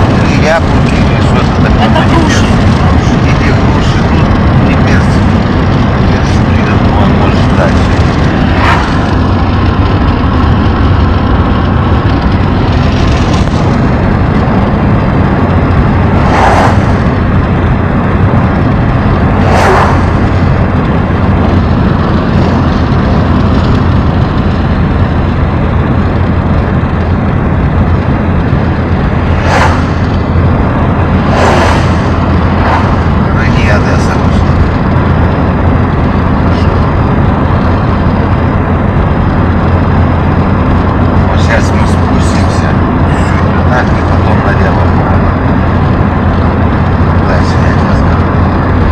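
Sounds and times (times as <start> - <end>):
car road and wind rumble: 0.0 - 48.9
brief whooshes: 8.5 - 9.2, 16.2 - 17.0, 19.3 - 20.4, 29.2 - 30.2, 31.2 - 33.2.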